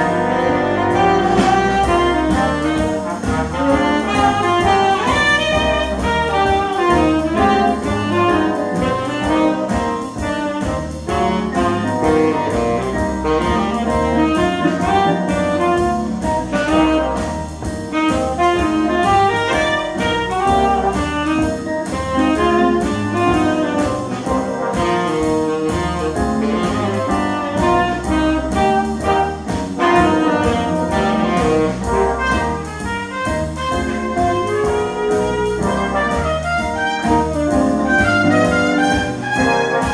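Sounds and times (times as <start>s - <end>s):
saxophones: 0.0s - 17.3s
brass: 0.0s - 39.9s
piano: 0.0s - 39.9s
steady drum beat: 0.0s - 39.9s.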